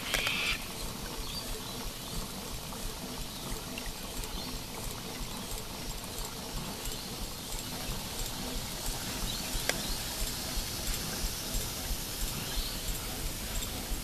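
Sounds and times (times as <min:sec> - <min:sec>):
steam hiss: 0:00.0 - 0:00.8, 0:07.6 - 0:14.0
steam engine rhythmic beat: 0:00.0 - 0:14.0.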